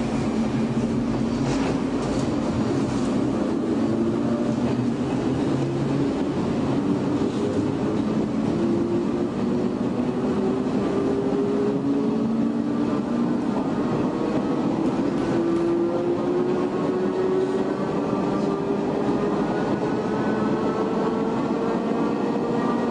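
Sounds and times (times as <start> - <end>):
wheel-on-rail rumble: 0.0 - 22.9.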